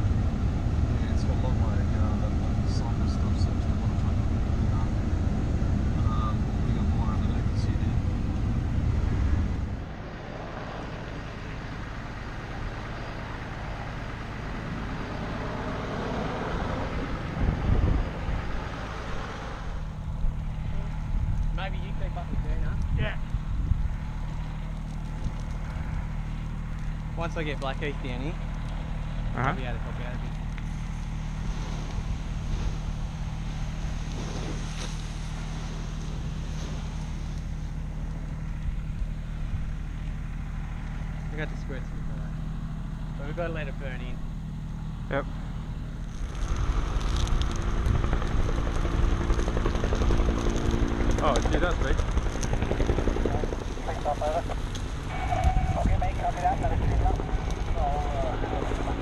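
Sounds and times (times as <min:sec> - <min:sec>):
fire truck engine running: 0:00.0 - 0:59.0
steady rushing noise: 0:29.6 - 0:39.9, 0:45.9 - 0:59.0
hose spraying water: 0:30.8 - 0:37.6
pump engine running: 0:44.4 - 0:59.0.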